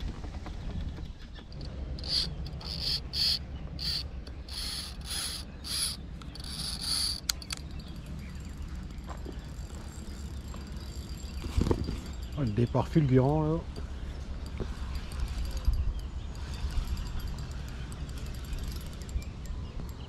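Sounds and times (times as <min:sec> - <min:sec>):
fishing reel whirring: 0:02.0 - 0:12.3.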